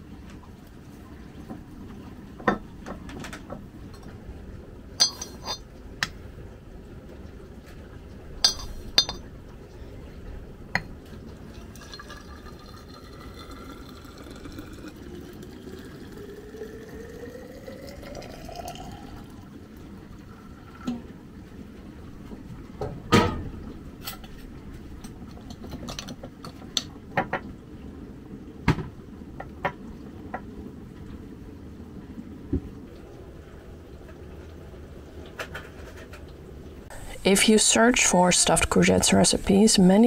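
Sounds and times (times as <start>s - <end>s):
glass clinking: 5.0s - 5.7s, 8.4s - 9.3s, 11.8s - 13.2s
liquid pouring into a glass: 11.2s - 20.9s.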